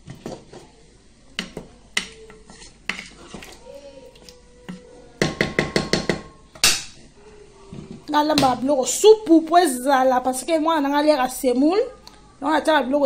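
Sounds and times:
utensil knocking on cooking pot: 5.2s - 6.7s.

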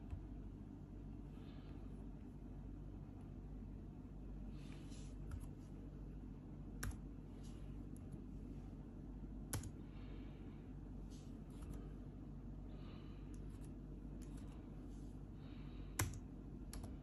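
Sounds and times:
low background hum: 0.0s - 17.0s
laptop keys clicking: 9.5s - 9.8s, 16.0s - 17.0s.

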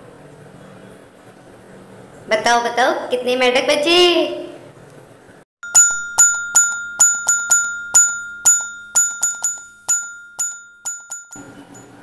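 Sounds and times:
bell-like chime strikes: 5.6s - 12.0s
steady high tone: 5.6s - 12.0s.

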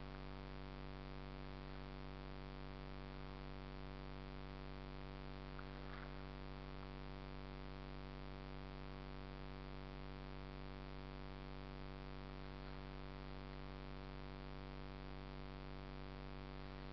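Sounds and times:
electrical hum: 0.0s - 16.9s.

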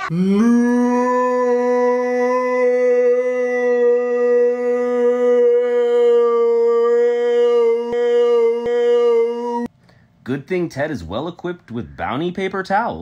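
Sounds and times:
man crying out: 0.0s - 9.7s.

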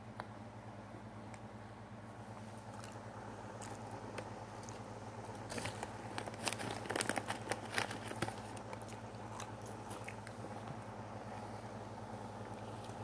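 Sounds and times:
steady low hum: 0.0s - 13.0s
dog crunching biscuit: 2.6s - 10.6s.

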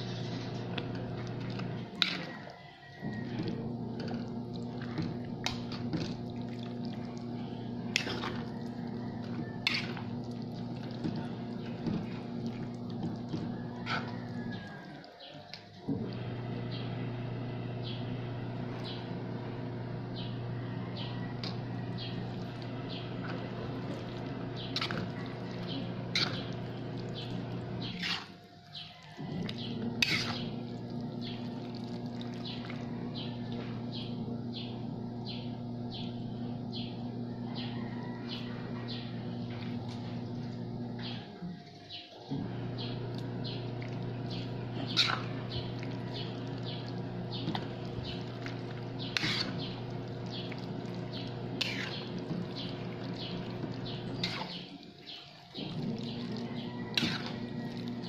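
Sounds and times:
steady low hum: 0.0s - 15.1s, 15.7s - 58.0s
wet squelching of spaghetti: 0.0s - 16.3s, 21.4s - 33.3s, 42.4s - 58.0s
fork clinking and scraping pan: 57.0s - 57.4s.

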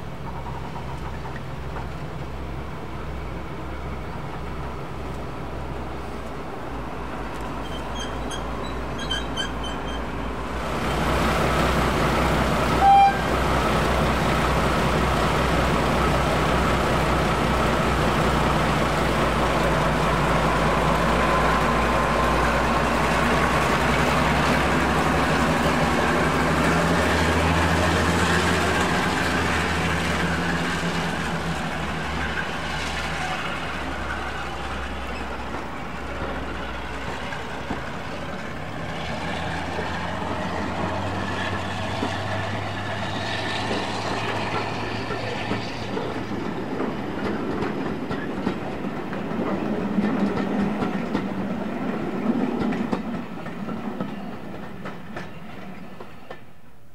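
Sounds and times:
diesel locomotive engine running: 9.6s - 55.0s
locomotive horn toot: 12.8s - 13.4s.

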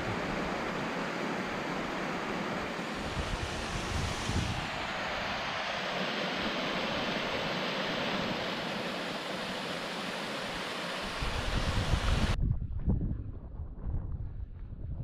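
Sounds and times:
wind rumble on microphone: 2.9s - 5.6s, 11.0s - 15.0s.

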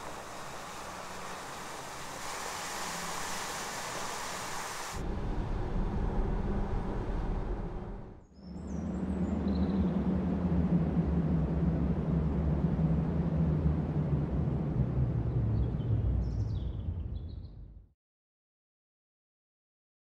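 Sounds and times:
tyres hissing on wet road: 0.0s - 5.0s
low hum: 0.0s - 17.9s
low steady rumble: 5.0s - 17.9s.

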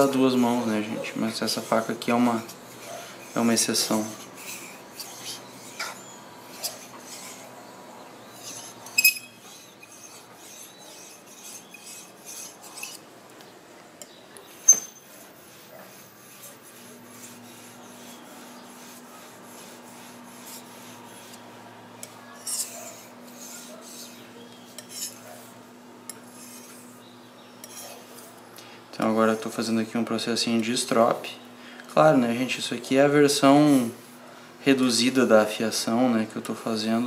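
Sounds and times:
knife scraping on whetstone: 0.6s - 7.5s, 8.3s - 13.0s, 14.5s - 28.4s, 33.5s - 33.9s.

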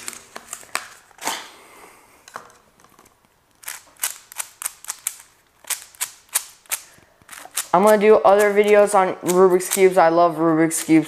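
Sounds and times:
puzzle cube plastic clicks: 3.0s - 10.0s.

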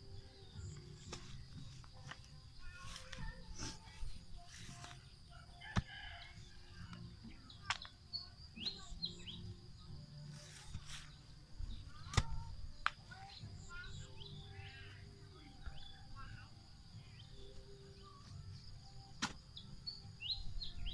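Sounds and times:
birds chirping: 0.0s - 20.9s
hoe chopping into soil: 19.2s - 19.4s.

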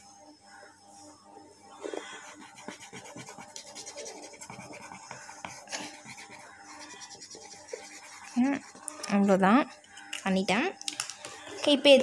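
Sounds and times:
felt-tip pen scratching on paper: 2.2s - 9.4s.

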